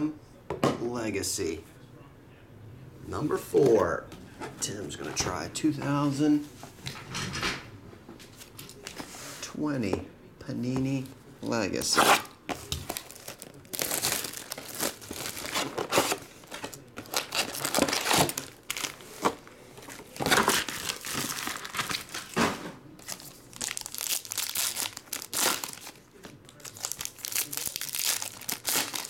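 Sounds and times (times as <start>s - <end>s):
plastic and foil packs crinkling: 11.8s - 29.0s
foil pack tearing open: 12.0s - 22.4s, 23.0s - 29.0s.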